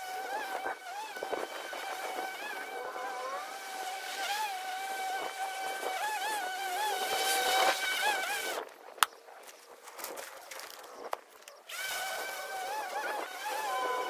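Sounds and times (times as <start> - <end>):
electric lawn mower whining: 0.0 - 8.6, 11.7 - 14.0.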